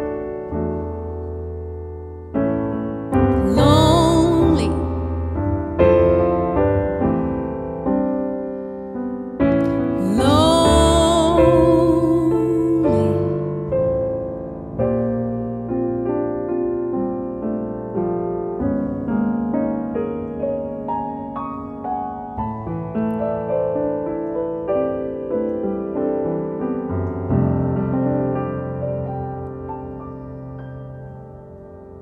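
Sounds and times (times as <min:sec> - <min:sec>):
grand piano playing: 0:00.0 - 0:32.0
woman singing wordless phrases: 0:03.4 - 0:05.0, 0:10.0 - 0:13.3.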